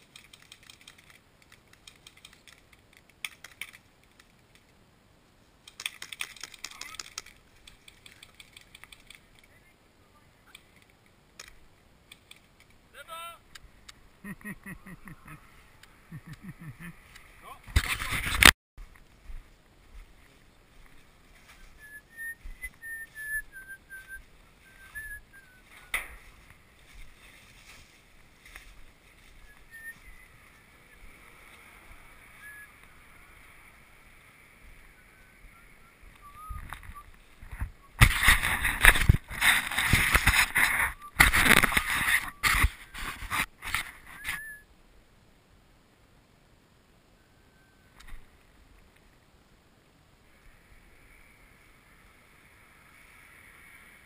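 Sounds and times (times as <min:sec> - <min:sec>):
faint high chirping calls: 0:21.3 - 0:26.4, 0:29.2 - 0:38.0, 0:44.1 - 0:44.7, 0:47.1 - 0:48.0.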